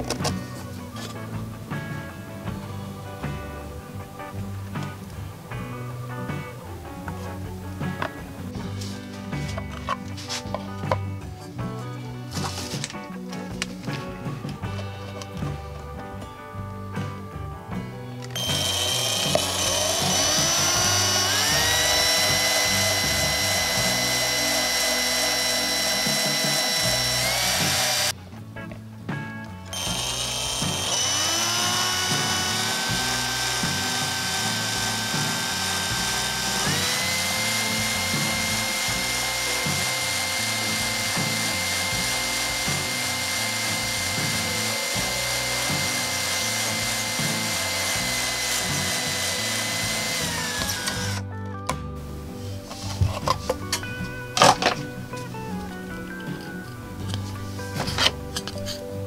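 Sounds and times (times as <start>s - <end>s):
electric drill whining: 18.4s - 28.2s, 29.7s - 51.3s.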